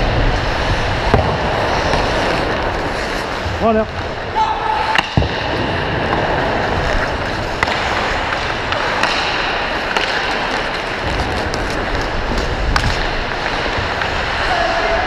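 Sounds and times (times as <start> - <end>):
hockey sticks and puck clacking: 0.0 - 15.0
skate blades scraping ice: 0.0 - 15.0.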